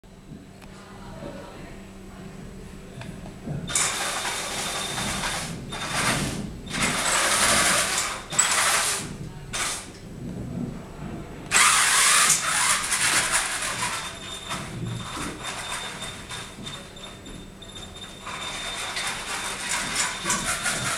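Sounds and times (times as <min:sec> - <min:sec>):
electric motors whirring: 0:03.7 - 0:09.8, 0:11.5 - 0:16.6, 0:18.2 - 0:20.9.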